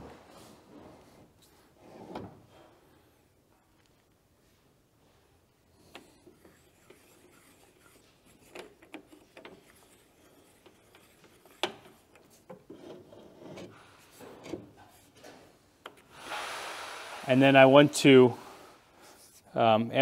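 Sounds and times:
faint scraping on sharpening stone: 0:06.0 - 0:13.7.

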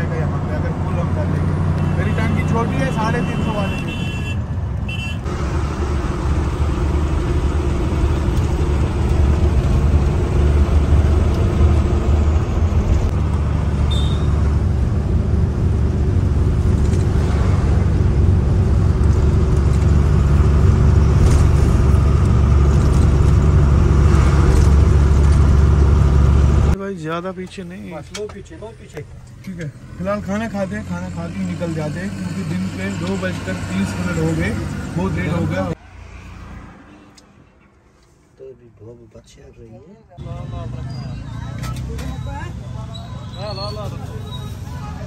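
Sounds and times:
truck engine rumble from cab: 0:05.3 - 0:17.0, 0:17.9 - 0:26.8.

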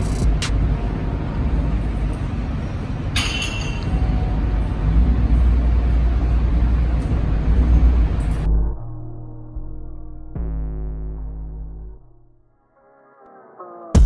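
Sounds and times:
low room rumble: 0:00.0 - 0:12.6
metallic clink: 0:03.1 - 0:04.0.

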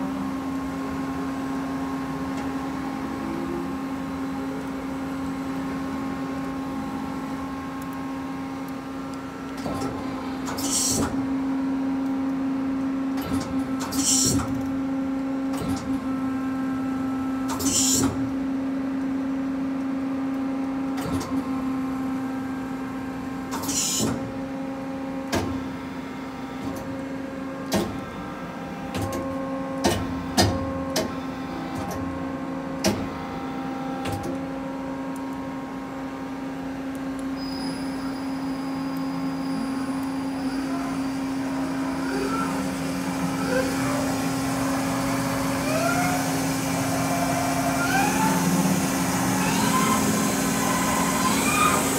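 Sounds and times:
high rising whine: 0:34.5 - 0:51.9
lathe humming: 0:39.6 - 0:51.9.

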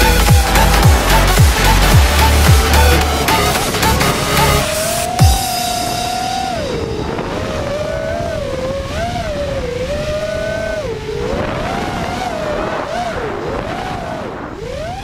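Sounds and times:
quadcopter motors whining: 0:00.0 - 0:15.0
rush of air noise: 0:00.0 - 0:15.0.

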